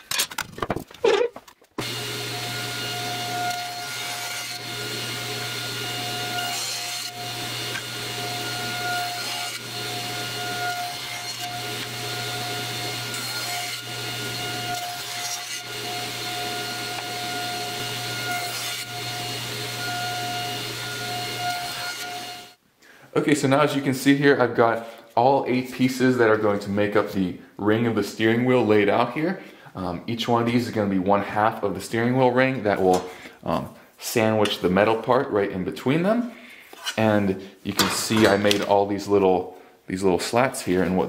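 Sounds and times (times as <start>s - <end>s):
table saw cutting wood: 1.8s - 22.6s.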